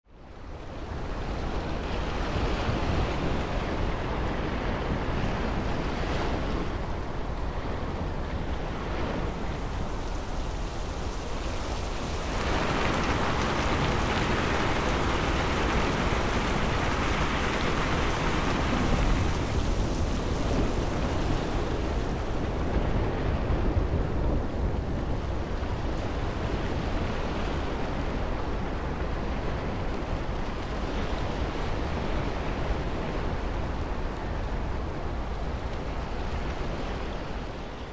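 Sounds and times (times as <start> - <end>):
rain hiss: 8.8 - 22.8.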